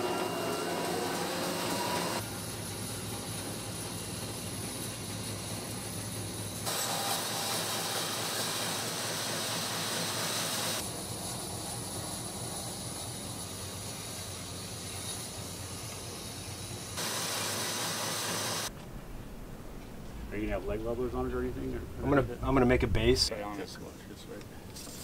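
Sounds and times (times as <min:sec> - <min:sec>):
bandsaw blade sawing wood: 0:00.0 - 0:02.2, 0:06.7 - 0:10.8.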